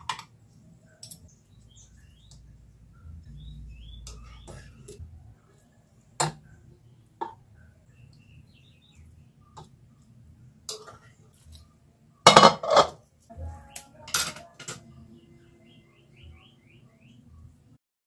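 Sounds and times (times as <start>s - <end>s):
metal utensils clinking on bowl: 12.3s - 13.0s, 14.0s - 14.8s.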